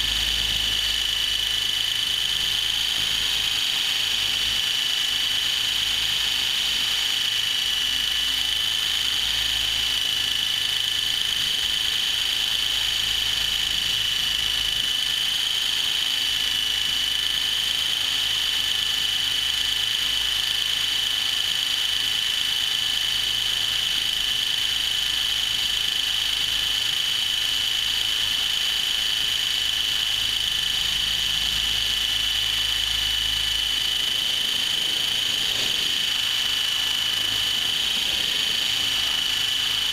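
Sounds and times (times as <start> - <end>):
rotor blades rushing: 0.0 - 14.2, 25.6 - 39.9
helicopter motor whine: 0.0 - 39.9.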